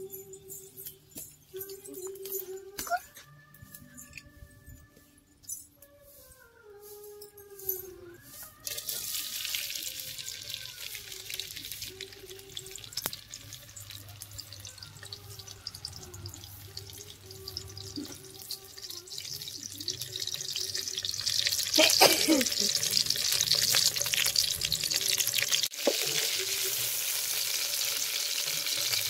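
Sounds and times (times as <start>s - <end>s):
chillies sizzling in hot oil: 8.6s - 29.0s.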